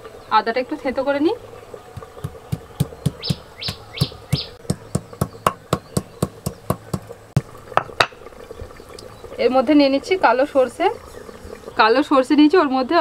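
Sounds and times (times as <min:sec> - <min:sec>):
stone knocking on grinding stone: 0:02.0 - 0:07.1
bird chirping: 0:02.2 - 0:07.1.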